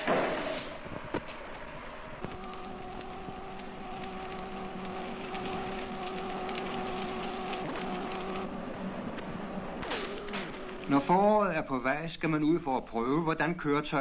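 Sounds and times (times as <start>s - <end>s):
steady hum: 0.0s - 14.0s
gas welding torch hissing: 2.2s - 11.6s.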